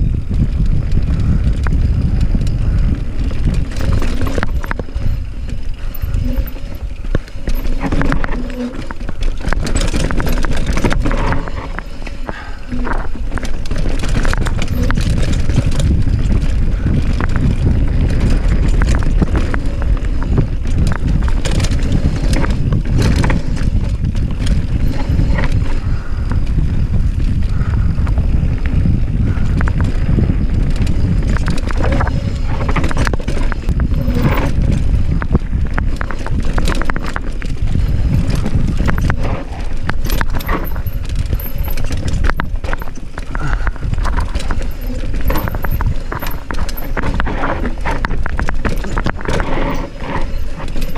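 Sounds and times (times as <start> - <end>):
bike rattling and knocking: 0.0 - 50.9
wind rumble on microphone: 0.0 - 50.9.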